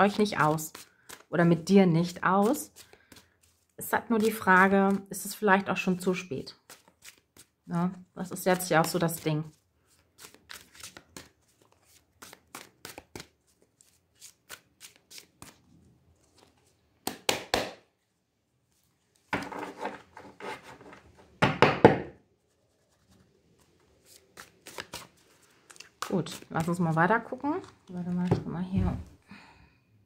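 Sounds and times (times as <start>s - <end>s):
cards shuffled by hand: 0.1s - 1.3s, 2.0s - 5.0s, 6.6s - 7.6s, 8.5s - 17.3s, 22.4s - 28.2s.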